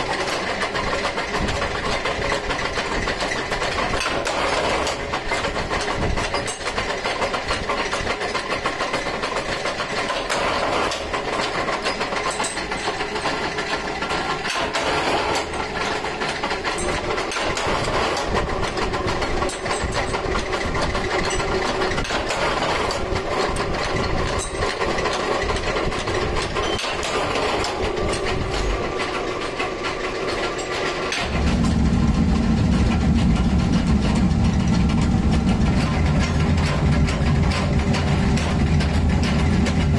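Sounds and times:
forming machine running: 0:00.0 - 0:39.9
metallic clanks: 0:09.1 - 0:39.9.

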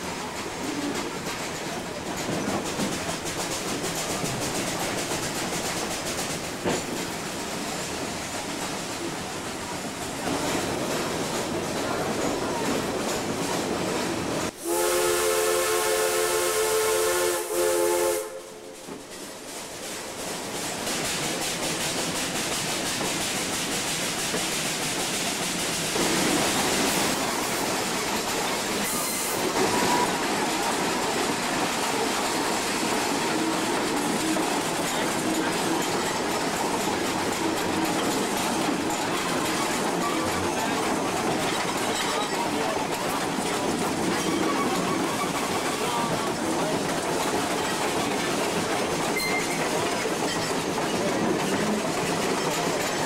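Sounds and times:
train rumbling over rails: 0:00.0 - 0:53.0
steam locomotive whistle: 0:14.6 - 0:18.8.

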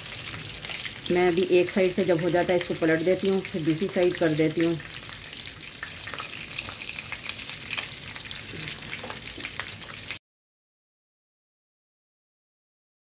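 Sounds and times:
food sizzling in oil: 0:00.0 - 0:10.2.

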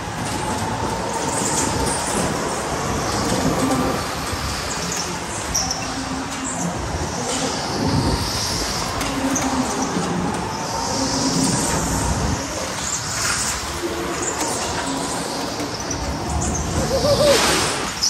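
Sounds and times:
go-kart engine and tyre rush: 0:00.0 - 0:18.0.

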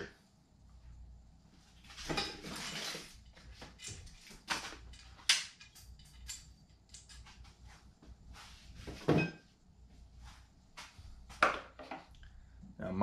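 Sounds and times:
metal parts clicking and clinking: 0:02.1 - 0:07.6.

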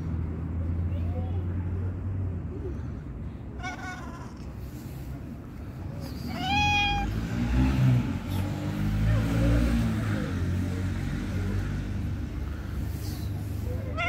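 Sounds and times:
low engine rumble: 0:00.0 - 0:14.0
cat meowing: 0:03.6 - 0:04.5, 0:06.3 - 0:07.2.

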